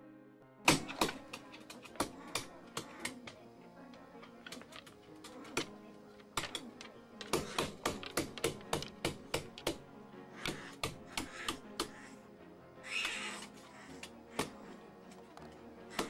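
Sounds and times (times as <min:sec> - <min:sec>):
background music: 0:00.0 - 0:16.0
skunk stamping feet on wooden floor: 0:00.8 - 0:09.8, 0:10.4 - 0:12.1.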